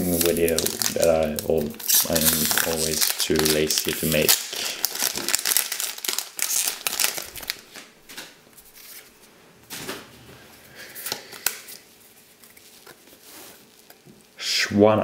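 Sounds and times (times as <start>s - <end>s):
foil wrapper crinkling: 0.0s - 7.9s.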